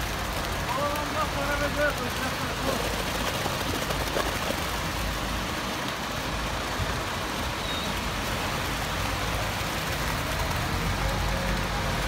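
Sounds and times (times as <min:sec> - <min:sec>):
wet concrete pouring down chute: 0:00.0 - 0:12.0.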